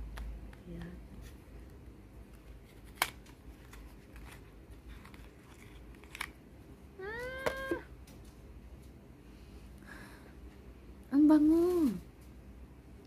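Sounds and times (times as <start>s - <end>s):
sharp clicks of small box: 2.8s - 3.8s
cat meowing: 7.0s - 7.9s.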